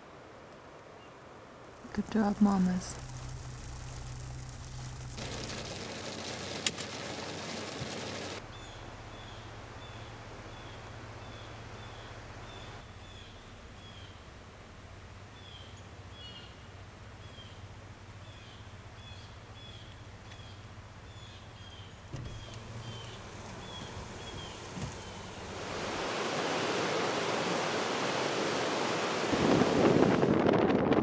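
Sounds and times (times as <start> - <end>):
rain pattering on window: 1.7 - 8.4, 22.1 - 26.0
bird chirping: 18.3 - 25.5.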